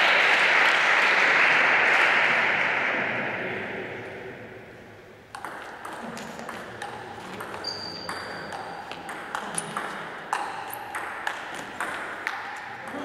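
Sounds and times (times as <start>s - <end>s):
applause: 0.0s - 3.1s
brief high squeak: 7.6s - 8.1s.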